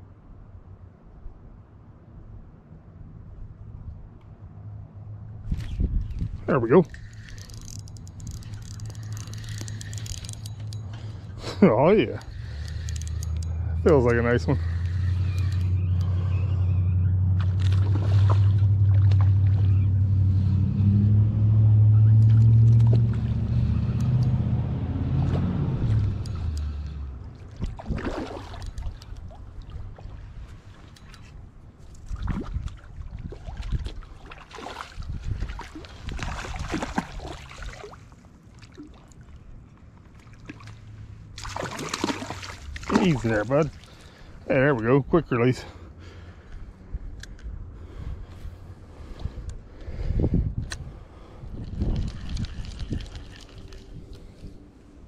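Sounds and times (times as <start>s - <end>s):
fishing reel being cranked: 6.9s - 11.0s, 12.1s - 16.2s
fish splashing at water surface: 27.5s - 29.8s, 32.1s - 39.2s, 41.4s - 44.2s.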